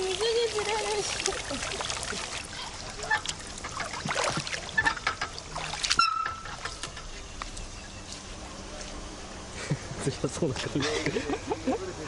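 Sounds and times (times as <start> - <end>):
pool water splashing: 0.0 - 7.7.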